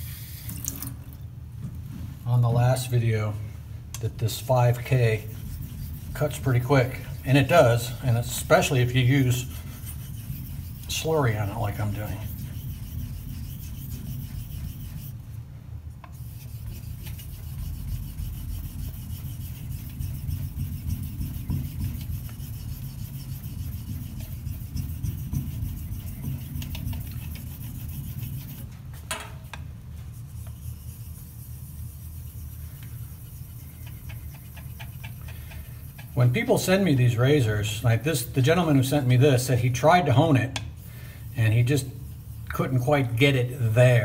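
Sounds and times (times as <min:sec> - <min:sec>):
razor scraping on wet stone: 0:04.2 - 0:15.2, 0:16.1 - 0:28.7, 0:30.4 - 0:37.4, 0:41.3 - 0:43.8.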